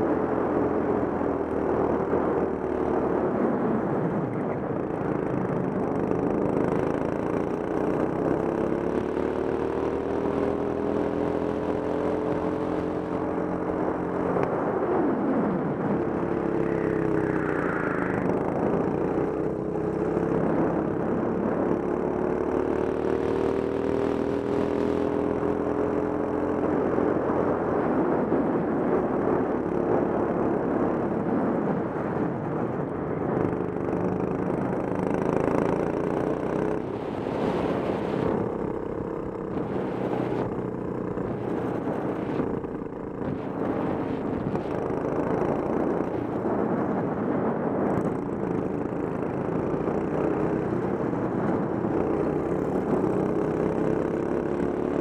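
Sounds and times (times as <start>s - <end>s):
wind: 0.0s - 55.0s.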